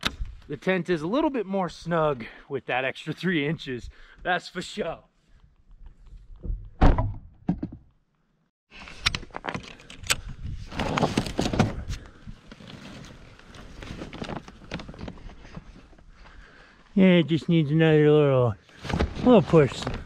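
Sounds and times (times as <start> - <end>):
loud thunk: 6.8 - 7.8.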